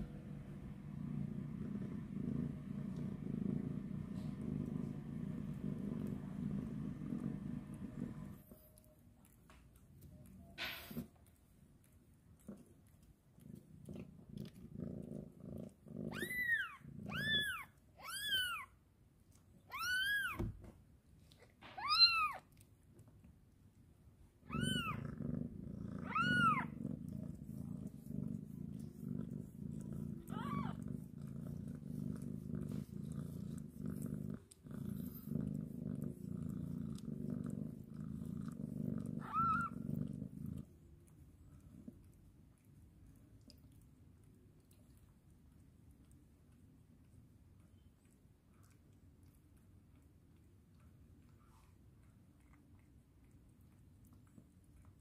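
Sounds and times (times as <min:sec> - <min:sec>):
cat purring: 0:00.0 - 0:08.9, 0:09.8 - 0:18.7, 0:24.4 - 0:55.0
kitten mewing: 0:24.5 - 0:25.0, 0:26.0 - 0:26.8, 0:30.2 - 0:30.8.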